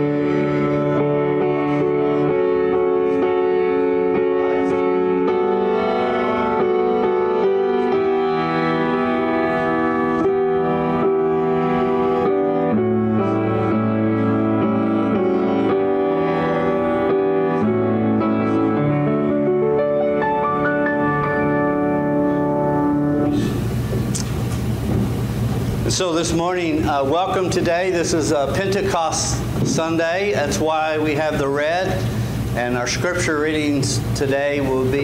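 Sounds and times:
slow hymn on strings and piano: 0.0 - 23.8.

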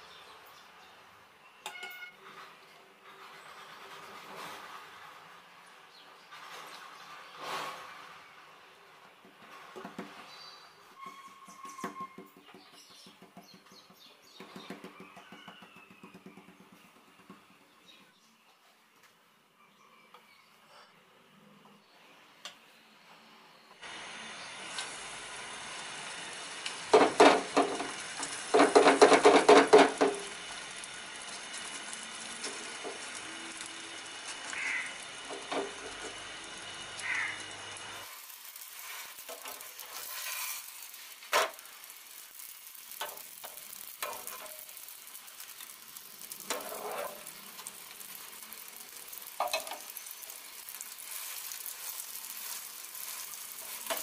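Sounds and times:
flatbread sizzling in oil: 23.8 - 54.0.

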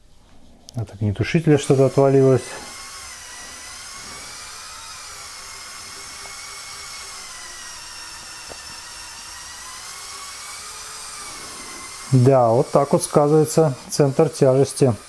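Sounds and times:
electric motors whining: 1.1 - 15.0.

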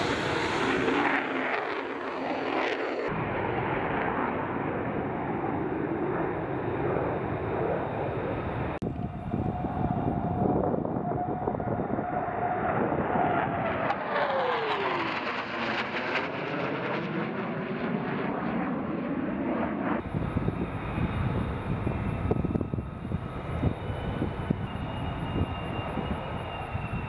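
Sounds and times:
distant jet engine rumble: 0.0 - 27.0
fighter jets passing overhead: 0.0 - 27.0
faint high whine: 20.0 - 27.0.

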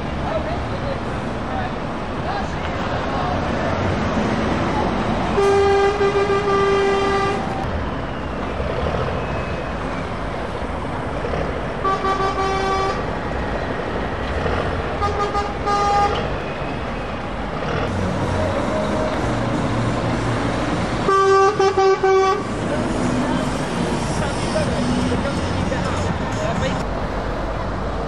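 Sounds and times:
lorry engines rumbling: 0.0 - 28.0
truck horn blasts: 5.3 - 7.6, 11.8 - 13.1, 15.0 - 16.3, 21.0 - 22.6.

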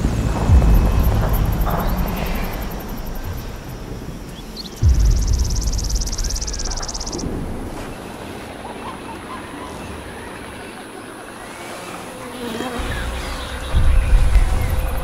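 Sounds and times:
deep low rumble: 0.0 - 8.1, 12.9 - 15.0
insects buzzing: 0.0 - 15.0
faint bird chirps: 0.7 - 11.5.

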